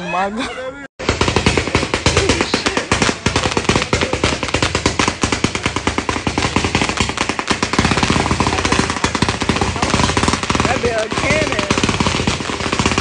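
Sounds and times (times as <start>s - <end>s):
firework rattle of sharp cracks: 1.0s - 13.0s.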